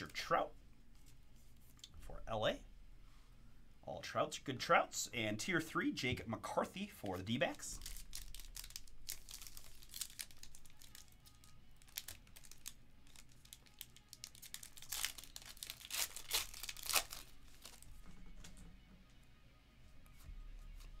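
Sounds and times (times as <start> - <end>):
foil wrapper crinkling: 7.1 - 18.0.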